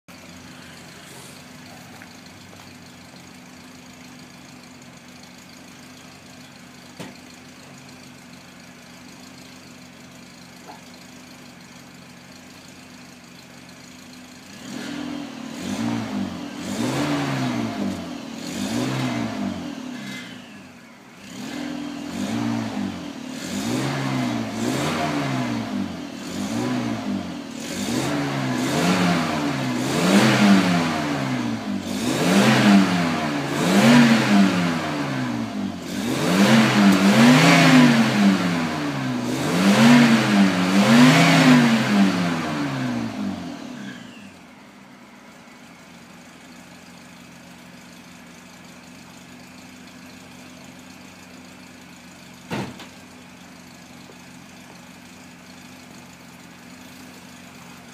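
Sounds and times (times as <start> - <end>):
car engine idling and revving: 0.0 - 57.9.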